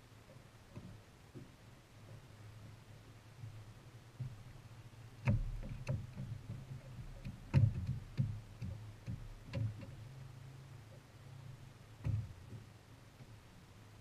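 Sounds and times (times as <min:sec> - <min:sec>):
knocks and clunks on boat deck: 0:00.2 - 0:04.5, 0:05.2 - 0:10.2, 0:12.0 - 0:13.4.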